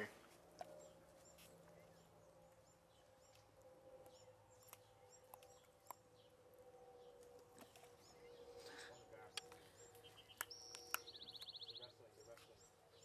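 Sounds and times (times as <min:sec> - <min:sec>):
faint bird chirps: 0:08.0 - 0:13.0.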